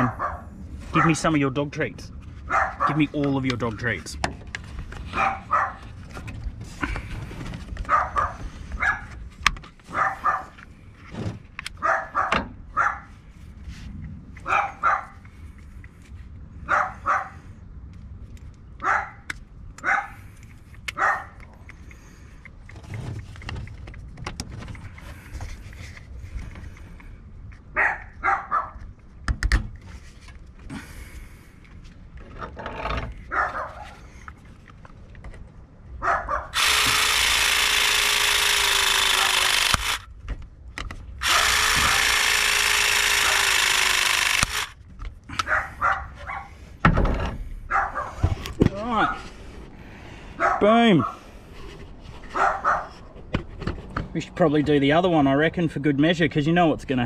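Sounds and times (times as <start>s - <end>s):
dog barking: 0.0s - 1.2s, 2.5s - 3.0s, 5.2s - 5.8s, 7.9s - 9.1s, 9.9s - 10.6s, 11.8s - 13.1s, 14.4s - 15.2s, 16.7s - 17.4s, 18.8s - 19.2s, 19.8s - 20.2s, 21.0s - 21.4s, 27.8s - 28.8s, 33.3s - 34.0s, 36.0s - 36.6s, 45.4s - 46.5s, 47.7s - 48.2s, 50.4s - 51.2s, 52.4s - 52.9s.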